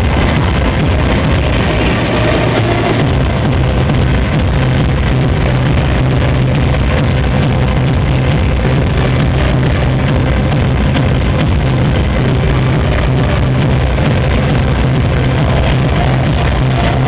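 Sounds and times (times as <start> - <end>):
electronic dance music: 0.0 - 17.0.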